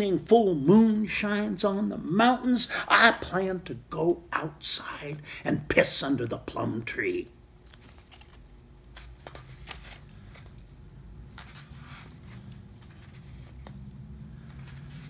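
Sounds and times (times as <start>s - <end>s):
low steady hum: 0.0s - 15.0s
book pages rustling: 7.6s - 15.0s.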